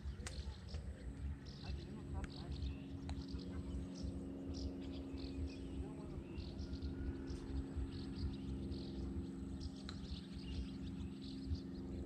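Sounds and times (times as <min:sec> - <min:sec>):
fluttering low rumble: 0:00.0 - 0:12.0
small birds chirping: 0:00.0 - 0:12.0
steady low hum: 0:00.0 - 0:12.0.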